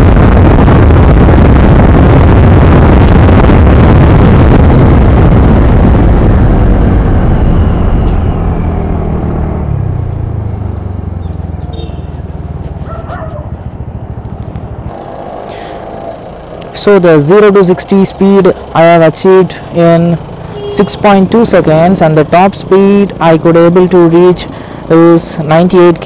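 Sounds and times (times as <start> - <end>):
wind on microphone: 0.0 - 8.9
scooter engine: 7.7 - 21.8.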